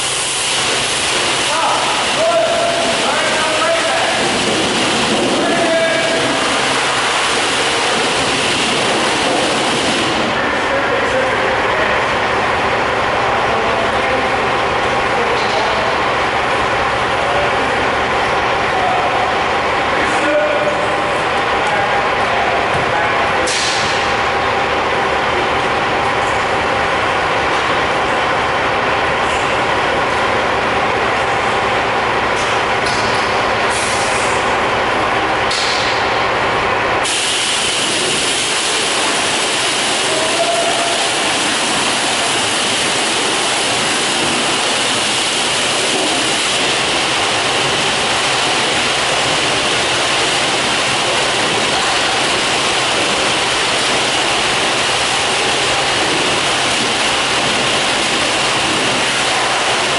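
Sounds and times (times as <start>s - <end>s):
high-pressure water spray hissing: 0.0s - 10.8s, 33.2s - 34.6s, 37.0s - 59.9s
low mechanical hum: 0.0s - 59.9s.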